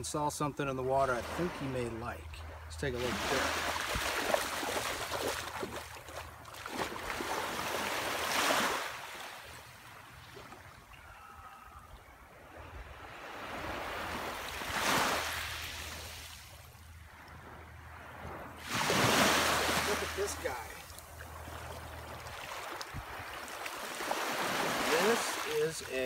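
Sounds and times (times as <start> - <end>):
small waves washing on sand: 0.9 - 11.7, 12.5 - 26.0
feet wading through water: 2.3 - 11.8, 13.2 - 26.0
wind on microphone: 22.8 - 23.4.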